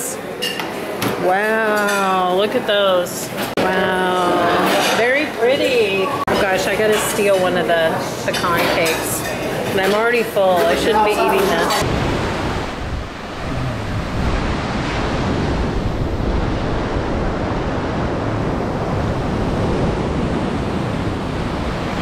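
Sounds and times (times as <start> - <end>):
wind rumbling on microphone: 11.8 - 22.0.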